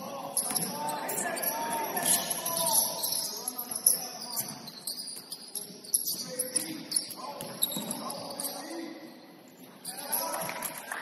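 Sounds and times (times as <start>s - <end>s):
sneaker squeaks on hardwood: 2.0s - 8.7s.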